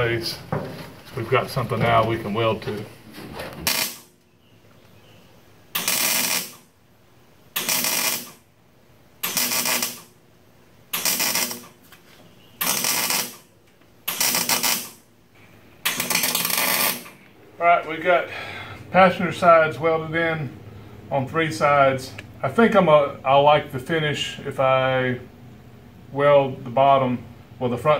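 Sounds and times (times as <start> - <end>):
welding arc bursts on sheet metal: 3.6 - 4.2, 5.7 - 6.7, 7.5 - 8.5, 9.2 - 10.2, 10.9 - 11.8, 12.6 - 15.1, 15.8 - 17.2.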